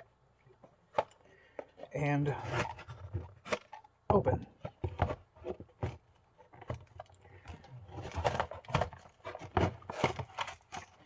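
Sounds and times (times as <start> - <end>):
packaging rustling: 4.6 - 11.0.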